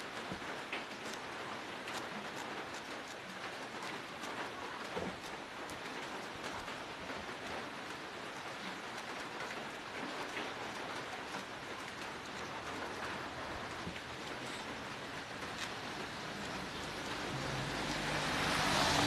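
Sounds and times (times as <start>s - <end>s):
steady rain hiss: 0.0s - 19.0s.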